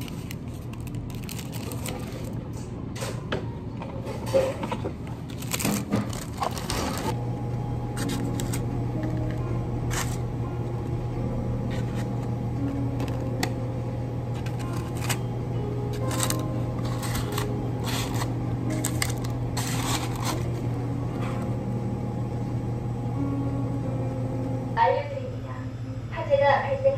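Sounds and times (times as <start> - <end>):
paper liners rustling: 0.0 - 2.4, 5.2 - 7.1, 14.4 - 15.2, 15.9 - 20.6
low hum: 6.6 - 26.9.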